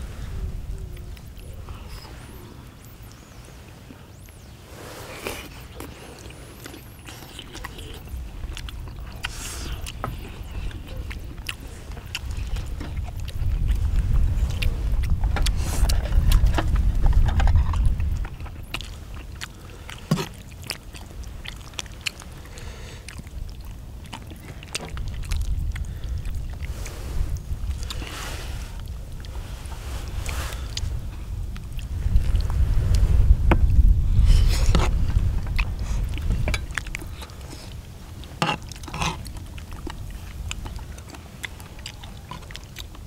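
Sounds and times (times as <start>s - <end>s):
low rumble: 0.0s - 3.2s, 8.0s - 19.6s, 22.4s - 41.1s
people chewing and biting food: 0.0s - 43.0s.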